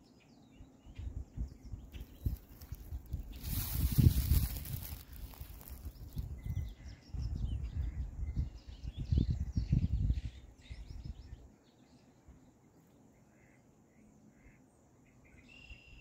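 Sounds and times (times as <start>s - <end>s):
small birds chirping: 0.0s - 16.0s
wind buffeting microphone: 0.9s - 11.5s.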